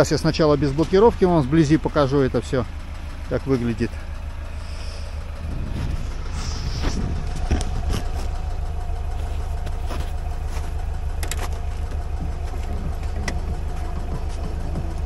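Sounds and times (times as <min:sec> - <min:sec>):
car engine idling: 0:00.0 - 0:15.0
footsteps on snow: 0:05.4 - 0:12.7.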